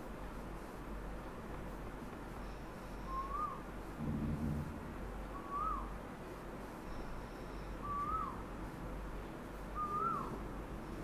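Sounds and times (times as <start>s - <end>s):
bird whistled calls: 3.0s - 3.6s, 5.3s - 6.0s, 7.7s - 8.4s, 9.8s - 10.4s.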